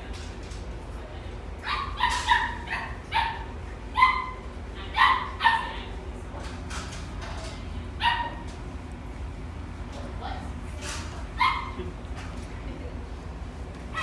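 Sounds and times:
puppy yipping and barking: 1.6 - 4.4, 5.0 - 5.8, 11.4 - 11.8.

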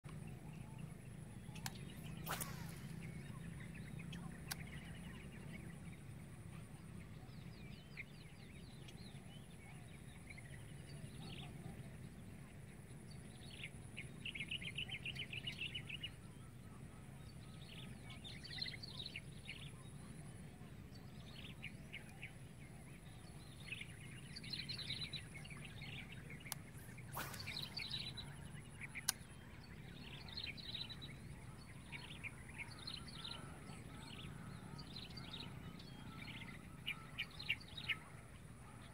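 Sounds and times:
faint low hum: 0.1 - 38.9
birds chirping and calling: 17.3 - 38.9
bird trill: 23.4 - 38.9.

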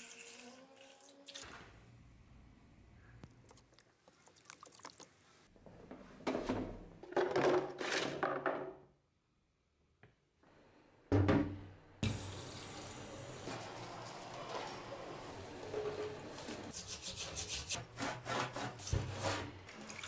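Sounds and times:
tap water pouring: 3.5 - 5.2, 19.7 - 20.0
liquid sloshing and splashing: 3.5 - 5.4.

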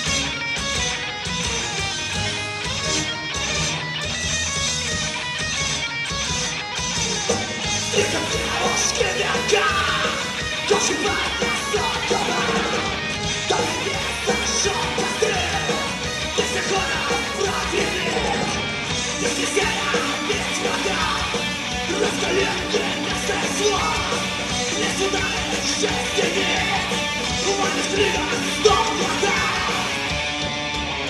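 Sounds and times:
bass guitar: 0.0 - 31.0
distorted electric guitar: 0.0 - 31.0
drums: 0.0 - 31.0
singer yelling and singing: 7.8 - 30.3.

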